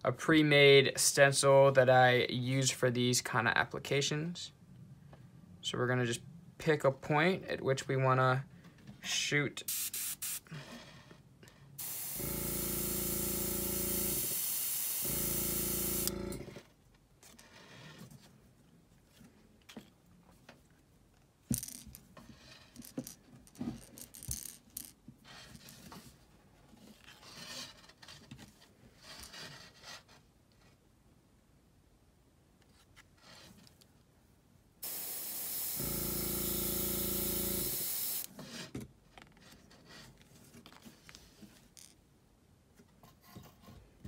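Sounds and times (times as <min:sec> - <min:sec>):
airbrush hissing: 0:09.7 - 0:10.5, 0:11.8 - 0:16.1, 0:34.8 - 0:38.3
small clicks and rubbing: 0:39.1 - 0:42.0.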